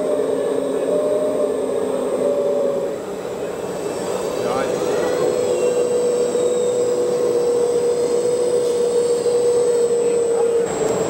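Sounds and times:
hydraulic pump whining: 0.0s - 11.0s.

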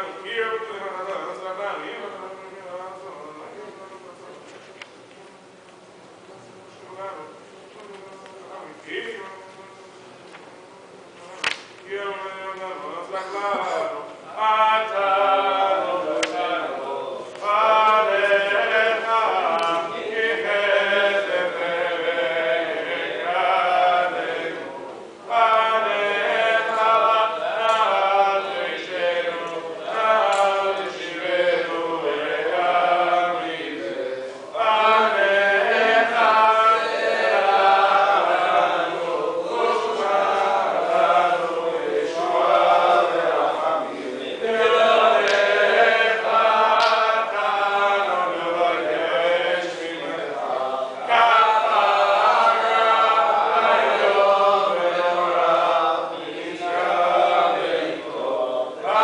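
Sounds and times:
men chanting: 11.8s - 59.0s.

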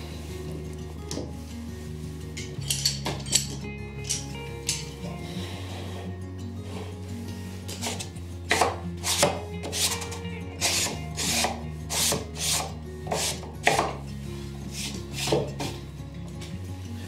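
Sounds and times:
wood rubbing on wood: 5.3s - 14.0s, 14.7s - 15.8s.

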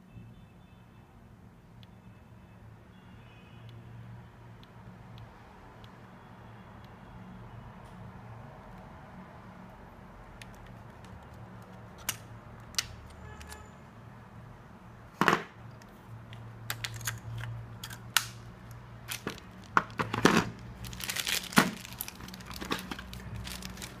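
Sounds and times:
plastic packaging crinkling: 19.0s - 24.0s.

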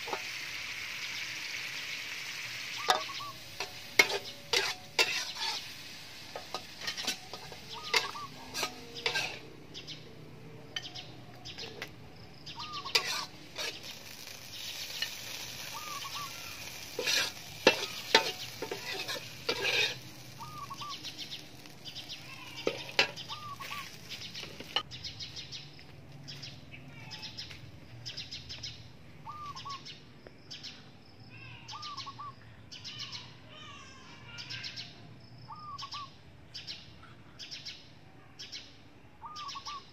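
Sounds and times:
metal spatula scraping a pan: 0.0s - 0.4s, 2.8s - 9.6s, 12.6s - 24.8s
chicken sizzling in a pan: 0.0s - 9.6s, 11.6s - 24.8s
bird calling: 0.9s - 10.2s, 10.8s - 24.8s, 29.2s - 30.0s, 31.5s - 33.3s, 35.5s - 36.1s, 39.2s - 39.9s.

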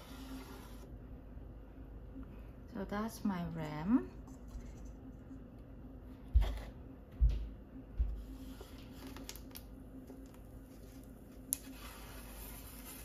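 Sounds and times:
pottery wheel motor humming: 0.0s - 9.0s.

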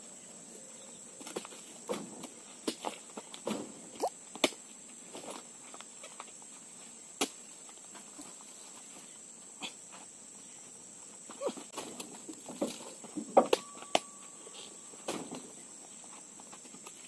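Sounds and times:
fruit bunches thudding into truck bed: 1.3s - 4.5s, 11.4s - 14.1s, 15.0s - 15.6s
high-pitched insect drone: 13.1s - 16.5s.

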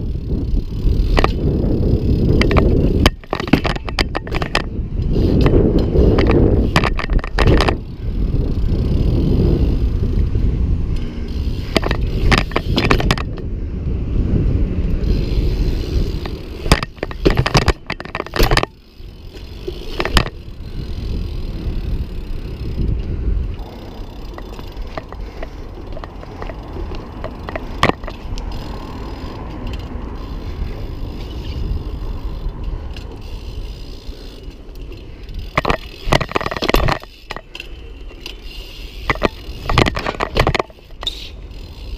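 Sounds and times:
bike tyres rumbling on bricks: 0.0s - 41.9s
bike landing knocks and clatters: 1.0s - 1.5s, 2.2s - 4.7s, 5.3s - 7.9s, 11.6s - 13.4s, 16.2s - 20.4s, 24.1s - 28.3s, 35.4s - 37.5s, 39.0s - 41.2s.

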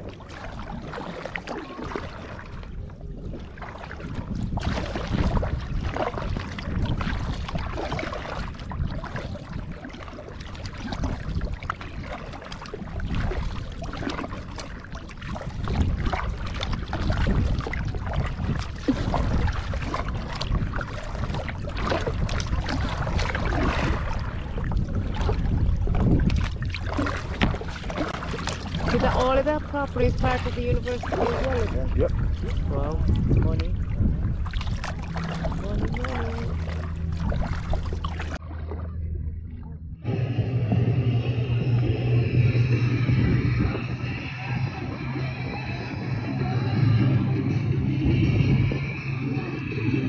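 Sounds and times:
paddle splashing in water: 0.0s - 39.7s
water washing against hull: 0.0s - 50.0s
wind rumble on microphone: 0.0s - 50.0s.

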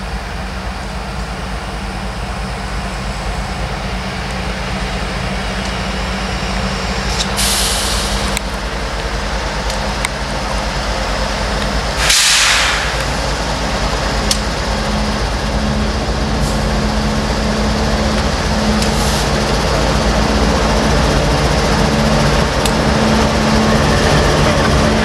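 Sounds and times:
diesel locomotive rumbling: 0.0s - 25.0s
short hiss: 12.0s - 13.2s.

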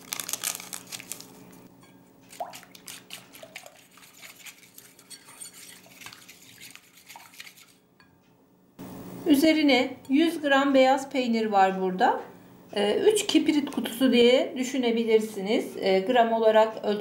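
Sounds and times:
whisk beating liquid in bowl: 3.0s - 7.8s.

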